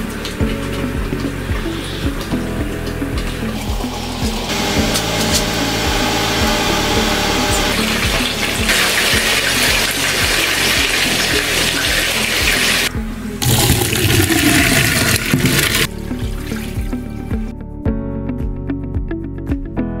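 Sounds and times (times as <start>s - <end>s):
water splashing into metal sink: 7.8s - 17.1s.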